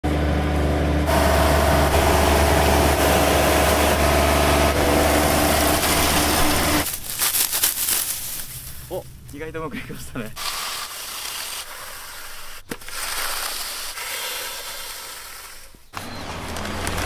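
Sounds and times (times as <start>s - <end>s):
combine harvester drone: 0.0s - 7.3s, 16.0s - 17.0s
sickle cutting stalks: 2.4s - 9.5s.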